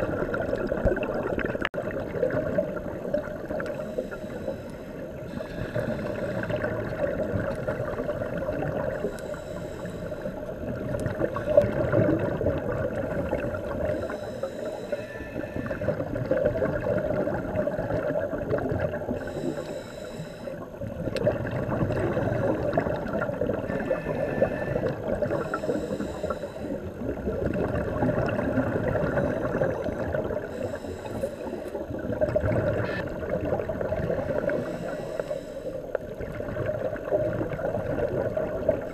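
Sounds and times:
gurgling exhaled bubbles: 0.0 - 4.4, 5.0 - 9.4, 10.3 - 14.3, 15.4 - 19.7, 20.6 - 38.9
regulator hissing inhale: 3.7 - 7.3, 8.8 - 12.0, 13.8 - 16.0, 19.1 - 20.8, 23.7 - 27.0, 30.3 - 32.1, 34.1 - 36.0.

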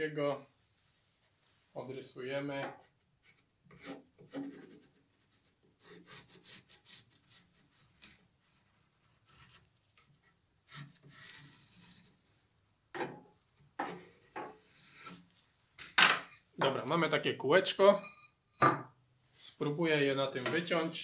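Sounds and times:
pencil scratching on wood: 3.2 - 8.2.

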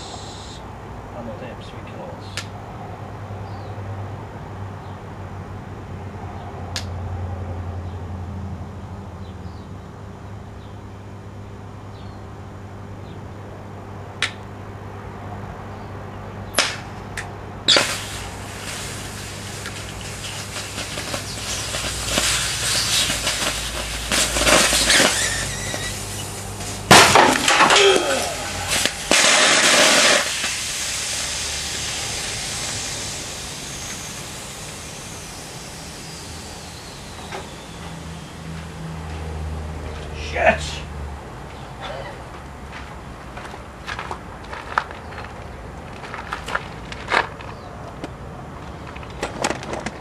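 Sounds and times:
batteries hissing and crackling: 0.0 - 0.6, 17.7 - 39.3
loud bang of bursting batteries: 17.6 - 38.8
transformer humming: 17.6 - 42.0.

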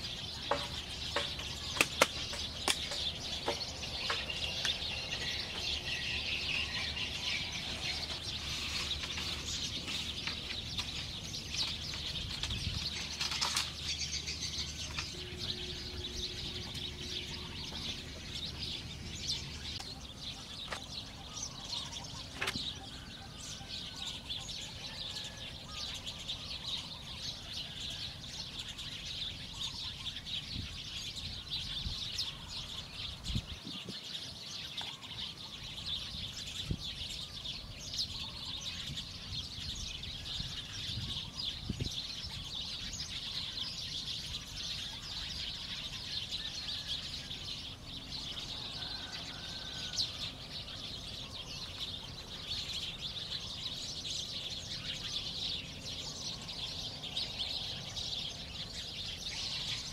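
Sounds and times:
birds chirping: 0.0 - 59.9
dull knocks on bamboo: 0.5 - 4.3.

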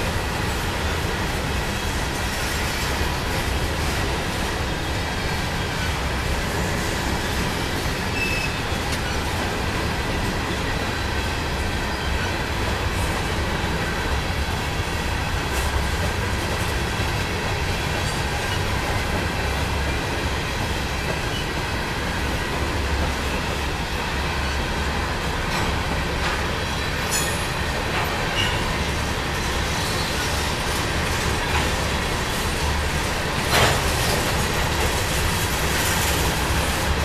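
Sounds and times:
freight train wheels rumbling: 0.0 - 37.0
wheel flange squeal: 7.6 - 9.3.

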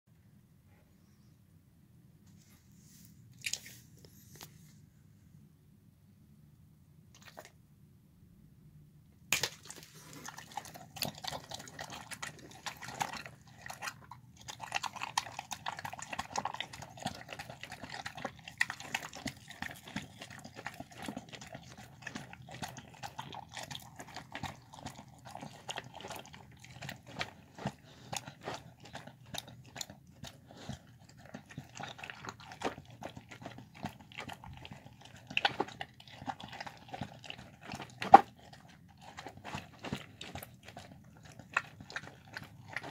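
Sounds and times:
dog chewing wetly: 9.3 - 42.9.

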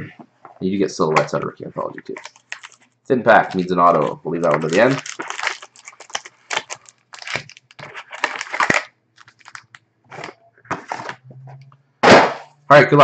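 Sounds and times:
foil packs crinkling and rustling: 2.1 - 2.8, 3.4 - 11.2.

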